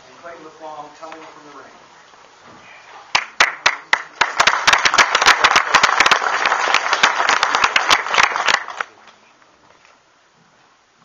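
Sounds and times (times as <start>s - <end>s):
audience applauding: 3.1s - 8.9s.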